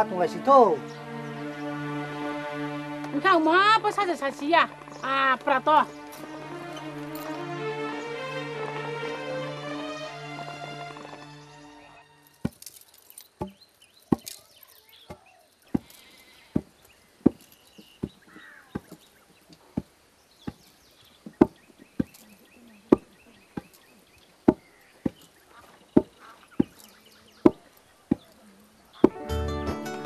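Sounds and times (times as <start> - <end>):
pestles pounding in a mortar: 16.5 - 19.1, 19.8 - 22.1, 24.4 - 25.3, 26.0 - 26.8.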